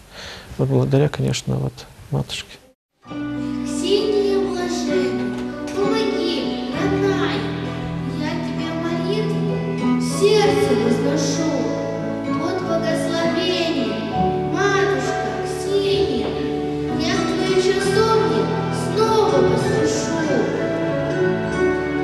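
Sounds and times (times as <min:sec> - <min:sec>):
girl singing: 0:03.4 - 0:20.6.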